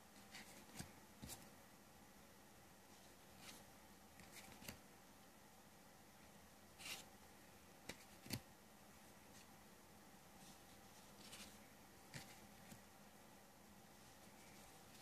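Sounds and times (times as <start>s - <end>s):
cards clicking and tapping: 7.8s - 8.5s.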